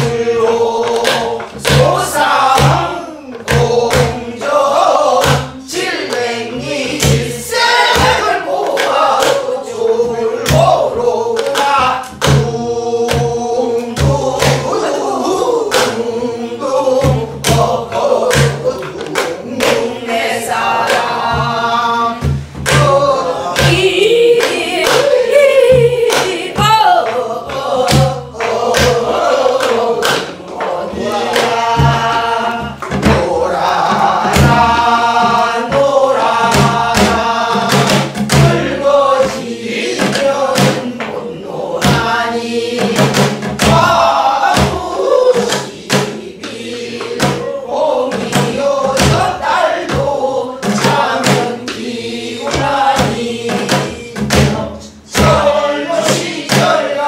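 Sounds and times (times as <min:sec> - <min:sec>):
men and women singing folk song: 0:00.0 - 0:57.0
barrel drum strokes: 0:17.0 - 0:57.0.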